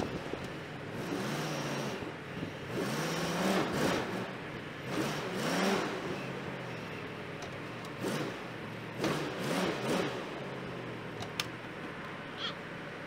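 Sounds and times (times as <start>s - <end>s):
pickup truck engine revving: 0.9s - 6.7s, 7.9s - 10.9s.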